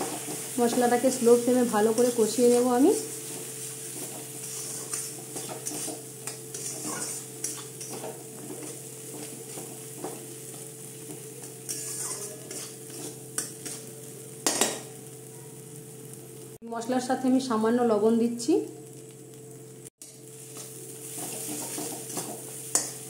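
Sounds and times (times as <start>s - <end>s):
paste sizzling in oil: 0.0s - 16.6s, 18.8s - 23.0s
metal spatula scraping pan: 3.3s - 10.7s, 11.4s - 13.9s.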